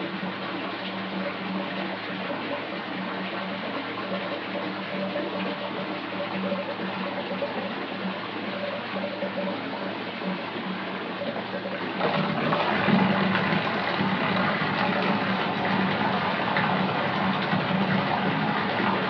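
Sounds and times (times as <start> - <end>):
water running into bathtub: 10.6 - 19.0.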